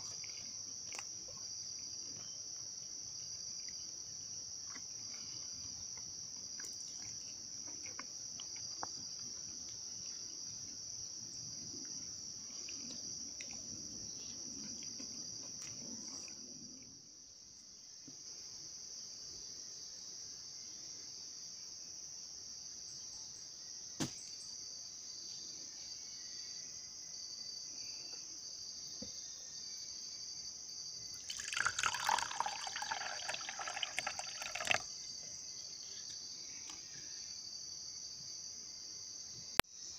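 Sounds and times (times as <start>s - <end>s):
insect chorus: 0.0s - 39.9s
liquid poured into wooden mug: 31.2s - 34.9s.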